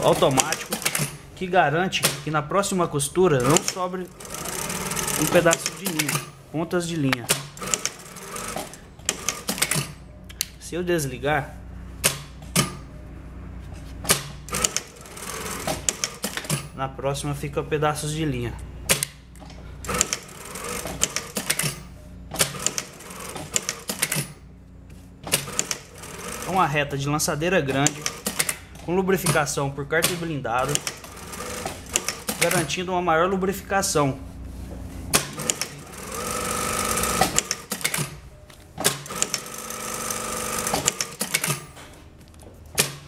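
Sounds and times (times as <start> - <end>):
sewing machine sewing: 0.0 - 1.2, 3.4 - 6.3, 7.3 - 9.9, 14.1 - 16.7, 19.9 - 21.8, 22.4 - 24.3, 25.3 - 26.7, 27.7 - 28.6, 30.6 - 32.7, 35.2 - 38.2, 38.8 - 41.7
sharp mechanical clicks: 3.4 - 6.3, 7.1 - 10.5, 14.1 - 14.9, 18.9 - 24.4, 25.2 - 25.9, 27.8 - 29.4, 30.0 - 32.6, 35.1 - 38.2, 38.8 - 41.7.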